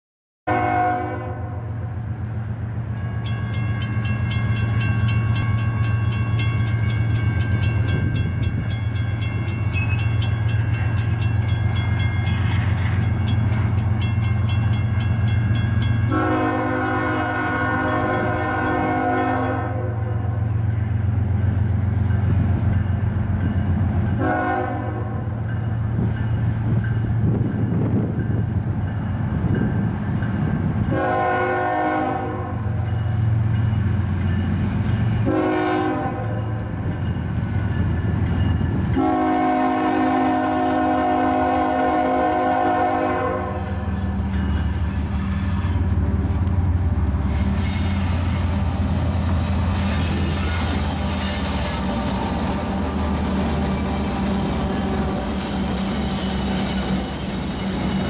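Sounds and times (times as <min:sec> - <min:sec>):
locomotive air horn blasts: 0:00.5 - 0:01.8, 0:16.0 - 0:20.4, 0:24.2 - 0:25.3, 0:30.9 - 0:32.8, 0:35.2 - 0:36.6, 0:39.0 - 0:45.9.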